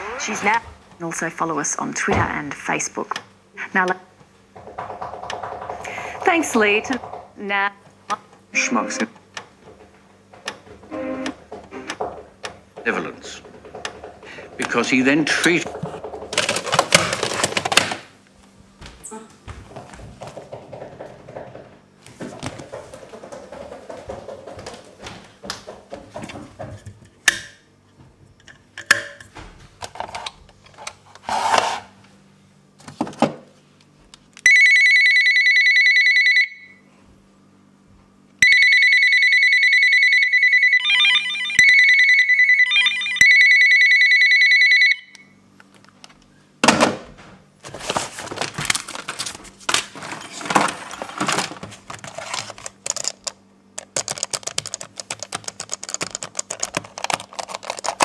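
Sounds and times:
clattering: 4.5s - 7.8s
electronic ringing tone: 8.5s - 9.3s, 10.7s - 12.4s, 34.5s - 36.8s, 38.4s - 45.4s.

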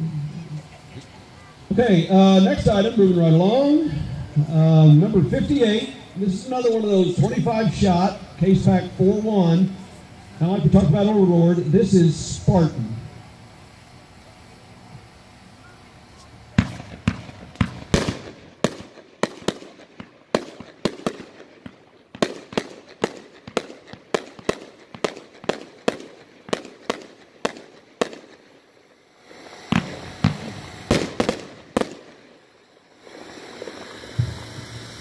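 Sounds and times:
firework cake firing sharp reports: 0.5s - 15.2s, 16.4s - 35.0s.

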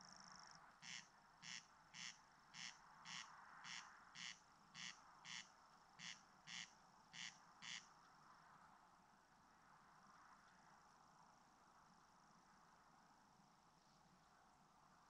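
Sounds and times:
corncrake rasping call: 0.8s - 7.9s.

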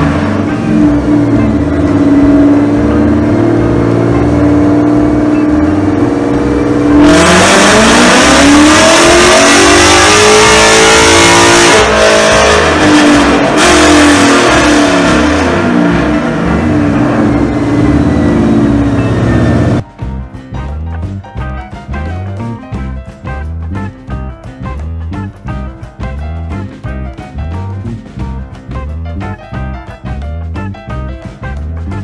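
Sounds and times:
car engine idling and revving: 0.0s - 19.9s.

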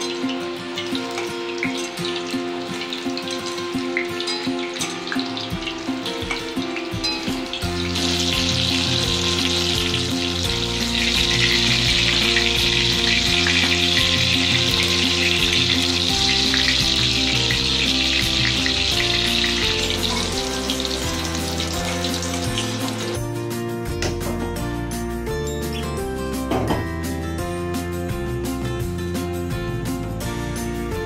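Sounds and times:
food sizzling in hot oil: 0.0s - 23.3s
background music: 0.0s - 31.0s.

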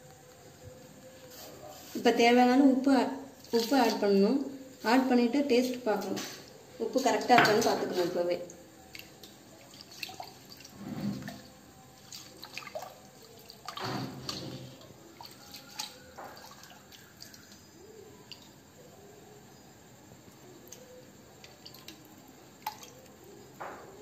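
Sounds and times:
spoon knocking against pot: 7.4s - 7.8s
water sloshing: 8.9s - 17.6s.

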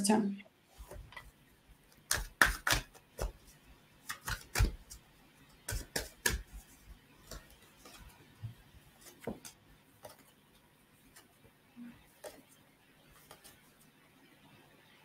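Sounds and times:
cards being shuffled: 1.9s - 5.0s, 9.0s - 10.4s, 13.2s - 13.8s.

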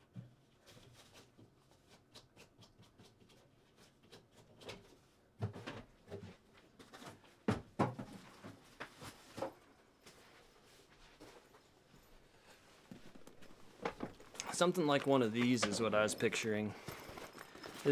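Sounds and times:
knocks and thumps: 7.4s - 8.6s.

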